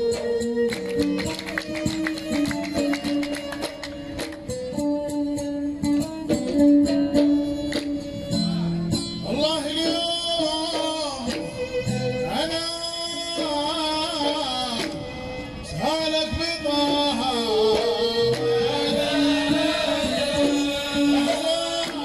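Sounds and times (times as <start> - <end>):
hand drums: 0.0 - 22.0
oud melody: 0.0 - 22.0
person singing: 15.8 - 22.0.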